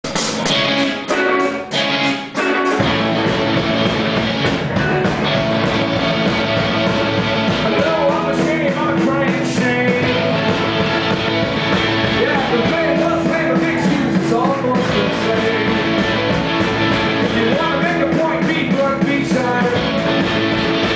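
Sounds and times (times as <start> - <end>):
electric guitar chords: 0.0 - 20.9
rock band playing: 0.0 - 20.9
man singing: 7.6 - 10.4, 12.1 - 16.2, 17.2 - 20.0.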